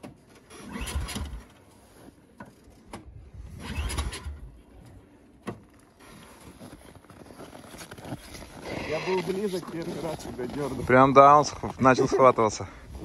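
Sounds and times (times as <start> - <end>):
snowmobile engine cranking: 0.2 - 1.9, 2.5 - 5.0.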